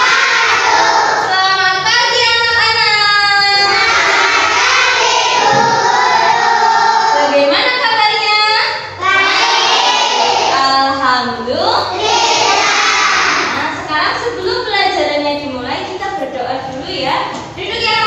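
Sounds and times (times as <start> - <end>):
children singing: 0.0 - 1.4, 3.6 - 7.3, 9.0 - 10.6, 12.0 - 13.6.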